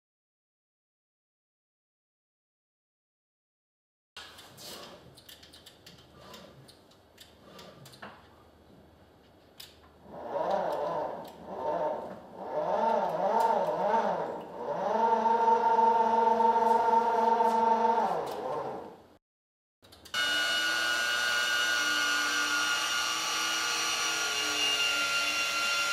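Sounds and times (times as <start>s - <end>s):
electric motor whining: 10.0s - 19.0s, 20.2s - 25.9s.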